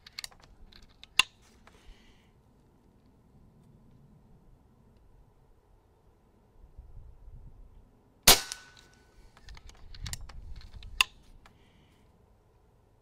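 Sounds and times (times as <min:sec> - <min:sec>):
air rifle shot: 0:08.3 - 0:08.9.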